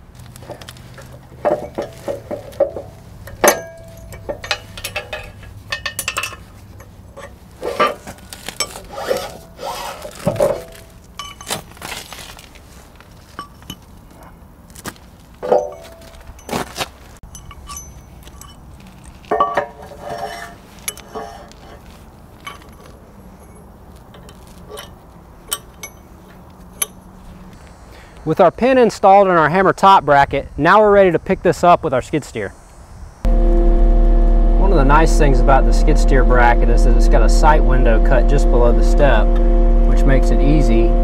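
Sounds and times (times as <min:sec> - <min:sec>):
steel pins clinking and scraping: 0:00.0 - 0:14.3, 0:15.4 - 0:27.6.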